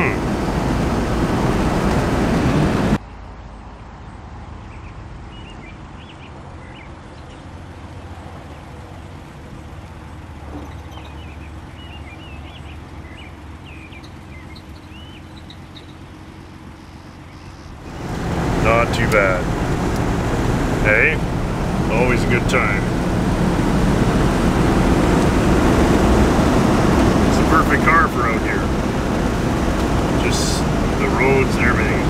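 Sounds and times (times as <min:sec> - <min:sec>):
car engine in cab: 0:00.0 - 0:03.0, 0:05.3 - 0:32.0
birds chirping: 0:04.6 - 0:32.0
low hum: 0:09.2 - 0:32.0.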